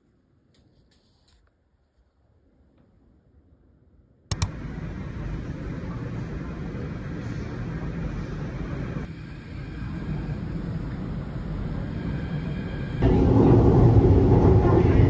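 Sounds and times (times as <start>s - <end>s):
subway train rumble and hiss: 3.1s - 15.0s
sharp clicks: 4.3s - 4.5s.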